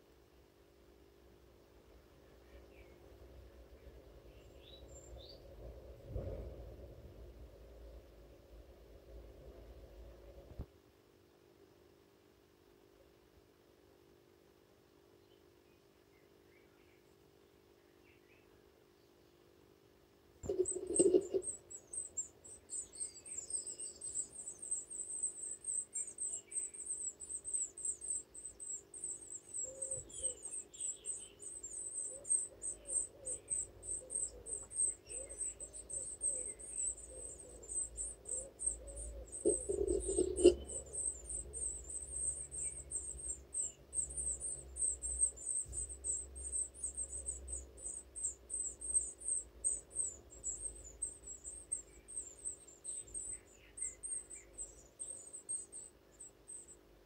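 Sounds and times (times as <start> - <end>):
steady low hum: 0.0 - 10.7, 20.4 - 57.0
nestlings cheeping: 20.4 - 22.9, 34.9 - 52.5.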